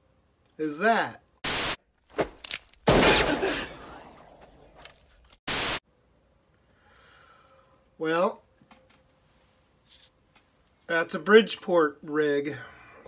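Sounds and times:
tv static hiss: 1.4 - 1.8, 5.5 - 5.8.

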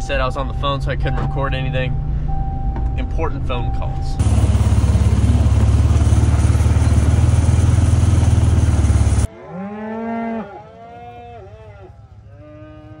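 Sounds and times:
atv engine running: 4.2 - 9.3, 11.3 - 13.0
cattle mooing: 9.3 - 13.0.

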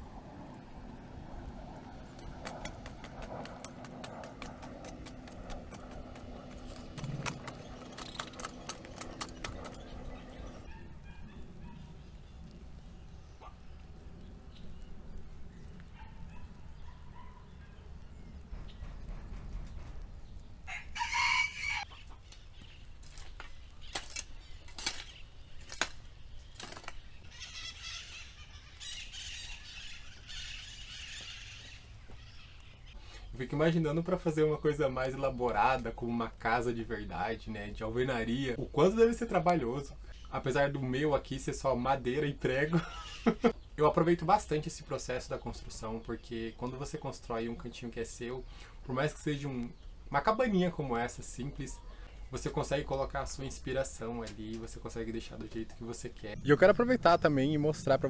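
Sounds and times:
garden tool scraping dry dirt: 2.5 - 10.6.

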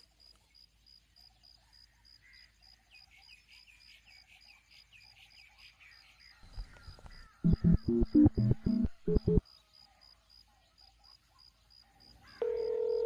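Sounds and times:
loud rhythmic music: 7.5 - 9.4.

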